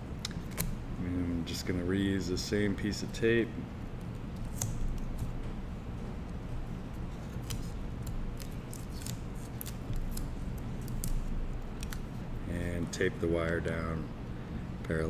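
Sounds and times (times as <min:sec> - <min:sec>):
steady low hum: 0:00.0 - 0:15.0
masking tape crinkling: 0:06.6 - 0:12.4.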